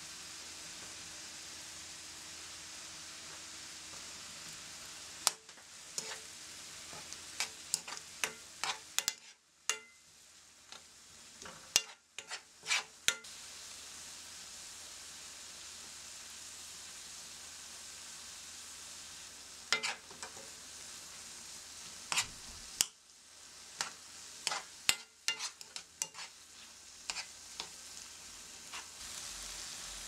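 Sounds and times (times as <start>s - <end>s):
food sizzling in a frying pan: 0.0s - 30.0s
spatula scraping and knocking pan: 6.0s - 6.3s, 6.9s - 10.0s, 11.4s - 13.2s, 19.7s - 20.5s, 22.1s - 22.9s, 23.8s - 27.8s, 28.6s - 29.0s.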